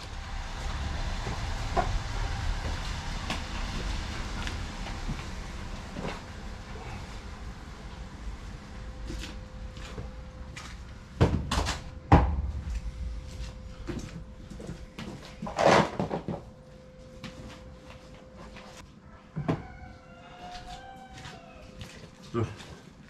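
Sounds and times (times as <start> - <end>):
faint steady hum: 0.0 - 23.0
knocks and bangs: 11.2 - 16.5.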